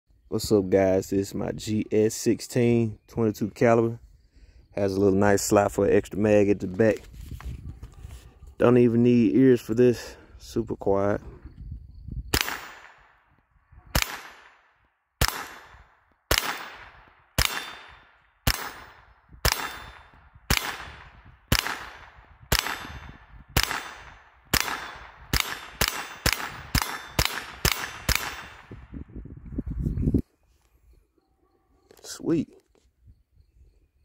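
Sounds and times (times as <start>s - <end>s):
rifle shots echoing: 12.3s - 13.3s, 13.9s - 28.8s.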